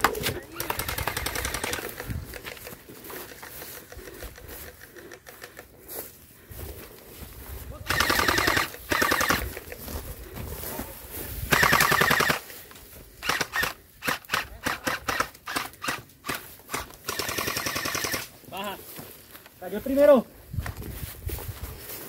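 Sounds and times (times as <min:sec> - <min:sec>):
toy rifle full-auto bursts: 0:00.6 - 0:02.0, 0:07.9 - 0:09.5, 0:11.5 - 0:12.4, 0:13.2 - 0:18.3
toy rifle single shots: 0:13.2 - 0:18.3.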